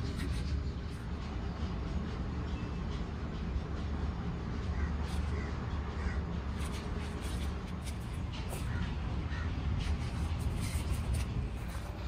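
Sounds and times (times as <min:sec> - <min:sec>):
steady low rumble: 0:00.0 - 0:12.0
birds calling: 0:04.7 - 0:06.8, 0:08.4 - 0:09.6.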